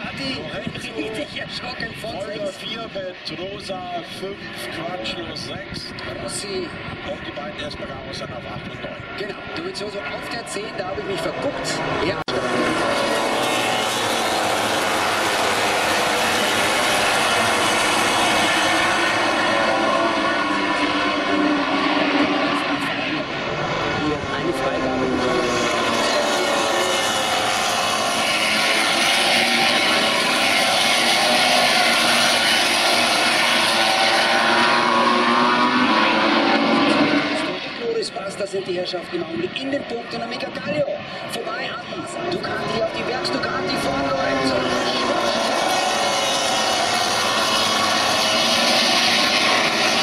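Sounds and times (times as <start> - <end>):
racing motorcycles passing: 9.0 - 38.3, 41.2 - 50.0.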